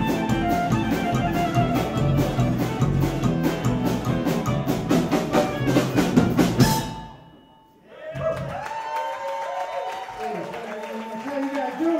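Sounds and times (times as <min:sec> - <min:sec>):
live band playing: 0:00.0 - 0:08.4
drums: 0:00.0 - 0:08.8.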